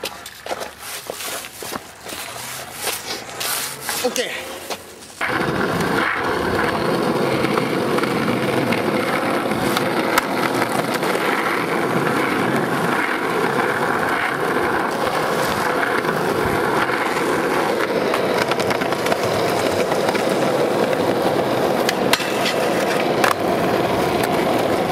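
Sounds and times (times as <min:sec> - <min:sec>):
skateboard wheels rolling on asphalt: 0:00.0 - 0:24.9
skateboard clacks: 0:04.6 - 0:24.9
skateboard pop: 0:05.2 - 0:13.6, 0:21.8 - 0:24.9.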